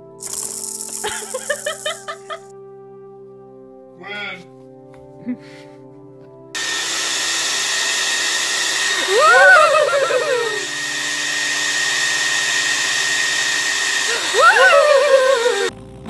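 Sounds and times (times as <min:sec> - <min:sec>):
high wailing cries: 0:08.9 - 0:10.9, 0:14.0 - 0:15.7.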